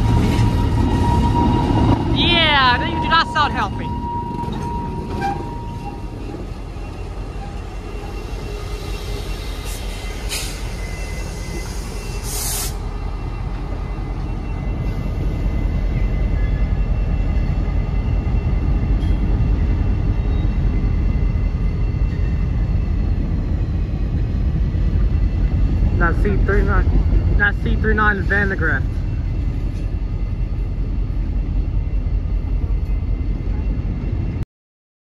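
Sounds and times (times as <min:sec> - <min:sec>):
diesel locomotive engine rumbling: 0:00.0 - 0:34.4
brief hiss: 0:11.7 - 0:12.8.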